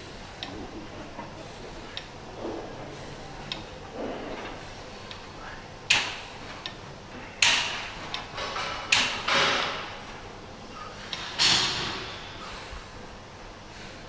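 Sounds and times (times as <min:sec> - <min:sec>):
weight machine knocking and sliding: 0:00.4 - 0:05.3, 0:05.9 - 0:10.2, 0:11.0 - 0:12.6.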